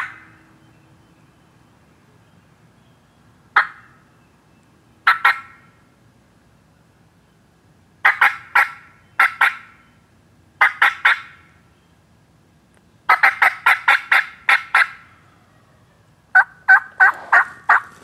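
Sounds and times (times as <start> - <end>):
turkey gobbling: 0.0 - 0.3, 3.6 - 3.9, 5.0 - 5.6, 8.0 - 9.7, 10.6 - 11.4, 13.1 - 15.1, 16.3 - 18.0.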